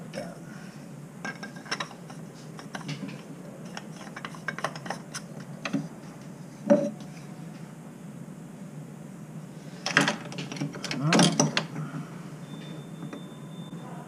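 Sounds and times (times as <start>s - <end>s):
metal faucet parts clicking: 3.7s - 5.8s.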